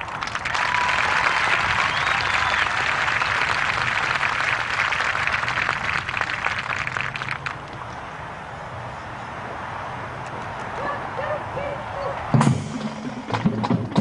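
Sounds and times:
crowd applauding: 0.0 - 7.7.

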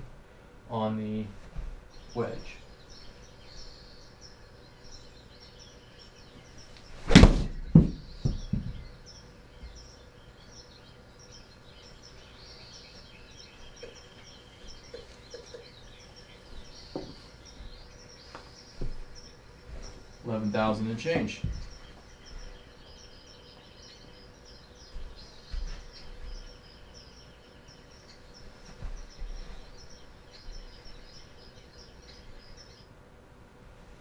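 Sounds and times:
faint high chirping: 1.9 - 33.0.

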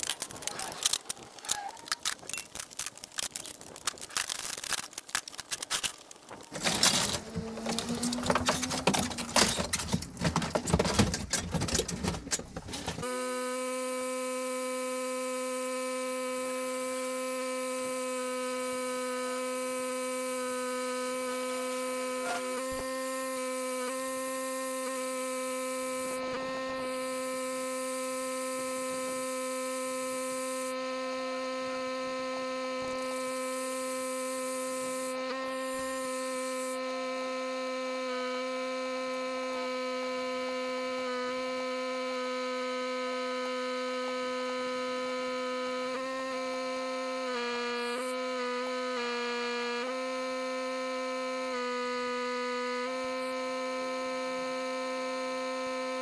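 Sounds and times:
pressure washer humming: 6.4 - 10.9, 16.1 - 30.8, 32.9 - 36.8.

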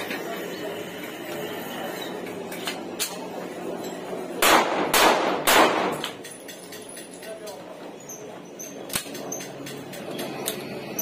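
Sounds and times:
pistol shots with echo: 4.4 - 6.1.

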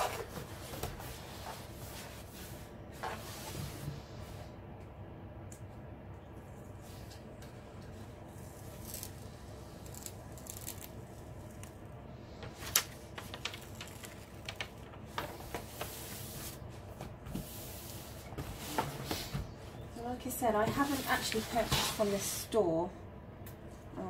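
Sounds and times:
plastic sheet rustling and crinkling: 8.4 - 19.4
sharp plastic crackles: 8.7 - 11.8, 12.4 - 15.9.

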